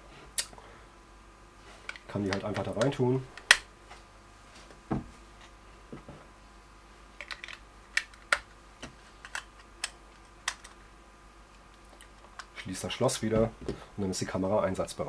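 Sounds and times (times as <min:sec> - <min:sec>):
batteries clicking into compartment: 0:07.2 - 0:08.5, 0:09.2 - 0:10.8.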